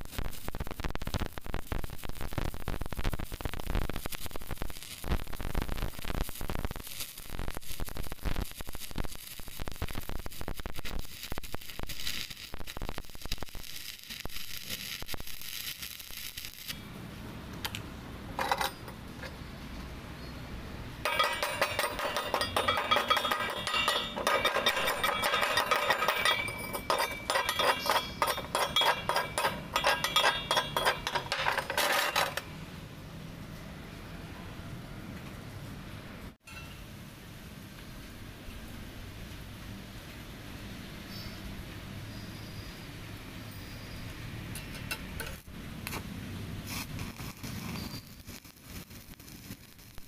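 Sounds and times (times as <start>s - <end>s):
welding arc crackling: 0.0s - 19.5s, 21.0s - 32.5s, 44.5s - 50.0s
chipping hammer on metal: 21.1s - 32.4s.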